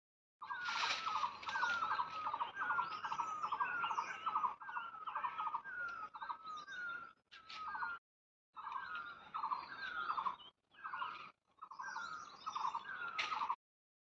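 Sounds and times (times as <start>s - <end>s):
bird whistle and rattle call: 0.4s - 8.0s
faint high bird or insect calls: 0.4s - 8.0s, 8.6s - 13.6s.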